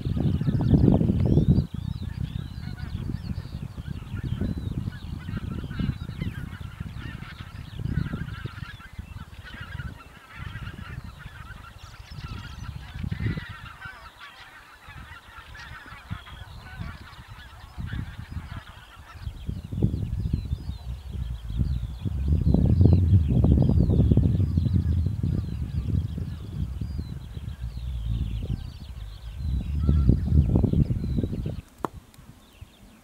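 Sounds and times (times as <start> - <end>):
low gusty rumble: 0.0 - 13.9, 14.9 - 32.8
geese honking: 2.2 - 3.4, 5.1 - 19.5, 25.3 - 31.2.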